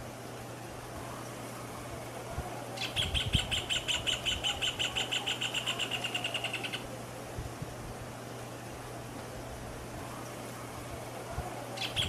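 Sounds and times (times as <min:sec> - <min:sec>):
bird singing rapid repeated notes: 0:02.8 - 0:06.9, 0:11.8 - 0:12.0.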